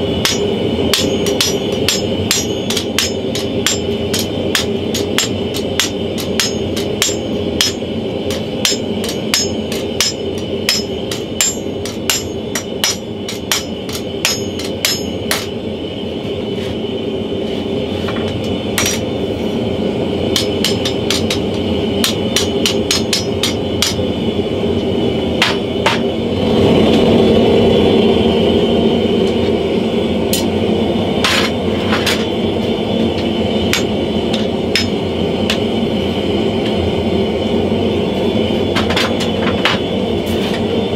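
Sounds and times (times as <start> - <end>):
forge roaring: 0.0 - 40.9
hammer striking metal: 0.2 - 15.6, 18.7 - 19.1, 20.3 - 24.0, 25.4 - 26.1, 33.7 - 35.6.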